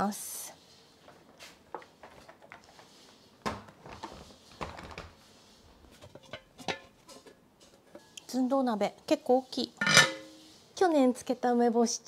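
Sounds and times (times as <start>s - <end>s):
metallic clinks of pot and lid: 9.8s - 10.4s.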